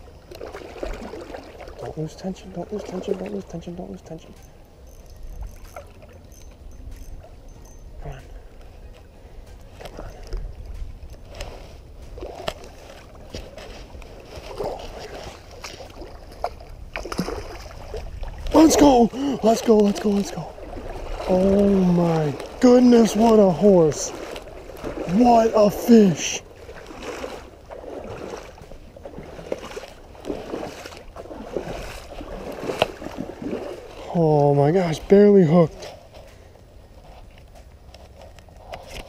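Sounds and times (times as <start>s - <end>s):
fish thrashing water splashing: 0.3s - 2.0s, 12.2s - 34.1s
wind rumble on microphone: 4.5s - 25.6s.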